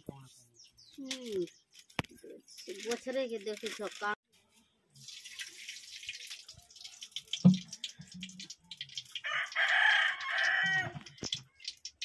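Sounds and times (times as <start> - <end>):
oil pouring and hissing: 5.0 - 12.0
rooster crowing: 9.2 - 11.0.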